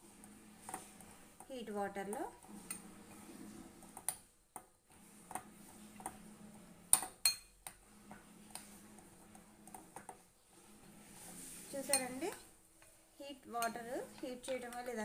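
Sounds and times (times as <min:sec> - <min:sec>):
spoon stirring thick paste: 0:06.8 - 0:15.0.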